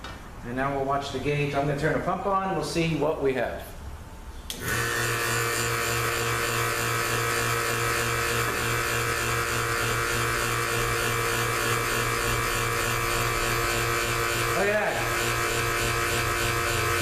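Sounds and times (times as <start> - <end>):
vacuum pump humming and hissing: 4.4 - 17.0.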